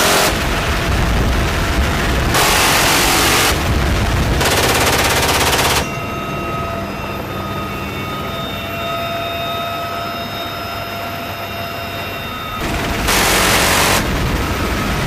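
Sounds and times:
machine gun firing bursts: 0:00.0 - 0:00.6, 0:02.3 - 0:05.9, 0:12.6 - 0:14.8
helicopter cabin noise: 0:00.0 - 0:15.0.

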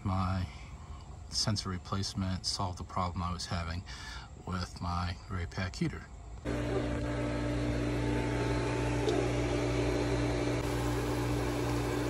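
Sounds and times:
pool pump motor humming: 0:06.4 - 0:12.0.

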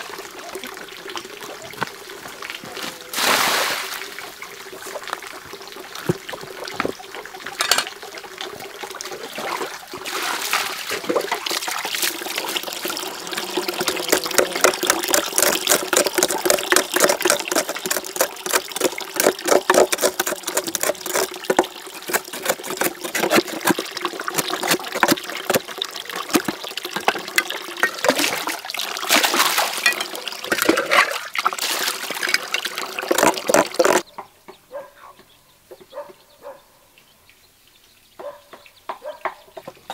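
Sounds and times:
water splashing into basin: 0:00.0 - 0:34.0
hands working in water: 0:09.1 - 0:34.0.

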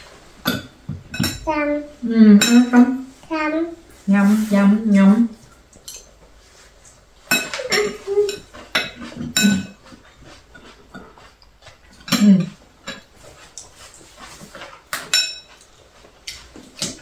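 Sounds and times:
chopsticks clinking on bowls: 0:05.7 - 0:06.2, 0:07.2 - 0:11.3, 0:15.0 - 0:16.5.

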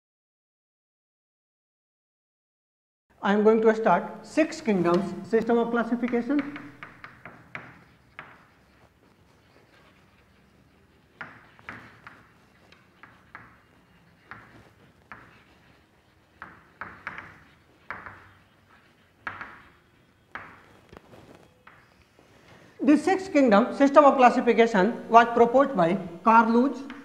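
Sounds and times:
chalk tapping and scratching: 0:04.2 - 0:23.1, 0:25.8 - 0:27.0.

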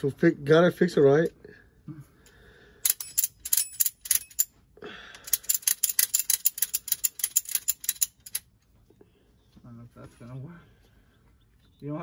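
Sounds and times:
ratchet strap clicking: 0:02.8 - 0:04.5, 0:05.2 - 0:08.5.

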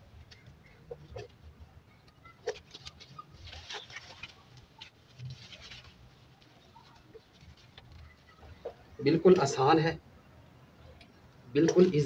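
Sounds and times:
plastic crinkling: 0:02.5 - 0:08.4.

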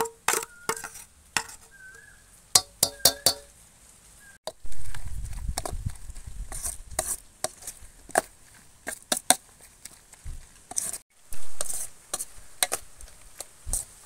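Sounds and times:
spoon scraping steel bowl: 0:00.3 - 0:01.8, 0:06.5 - 0:08.3, 0:10.7 - 0:13.9.

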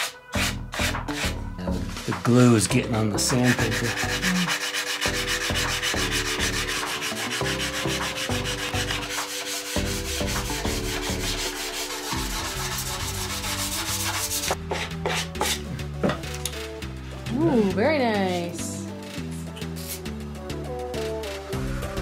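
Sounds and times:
sanding sponge rubbing on wood: 0:03.2 - 0:15.6.

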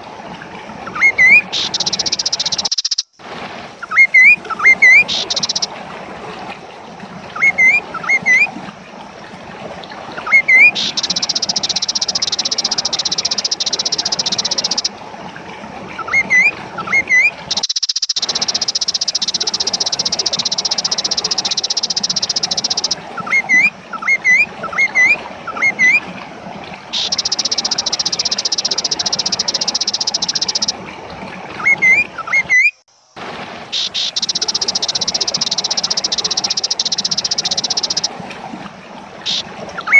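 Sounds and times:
songbird singing buzzing trills: 0:00.9 - 0:03.2, 0:03.8 - 0:05.7, 0:10.2 - 0:14.9, 0:16.0 - 0:26.0, 0:26.9 - 0:30.7, 0:33.7 - 0:38.1, 0:39.2 - 0:39.9.

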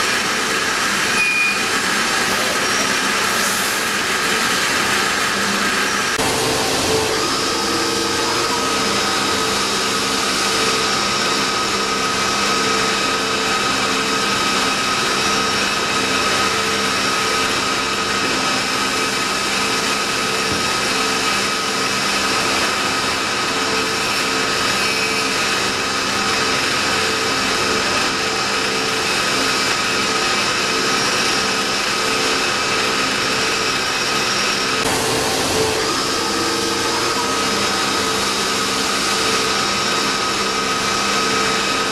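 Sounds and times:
lathe machine whine: 0:00.0 - 0:41.9
coolant hissing: 0:01.7 - 0:13.0, 0:34.8 - 0:41.9.

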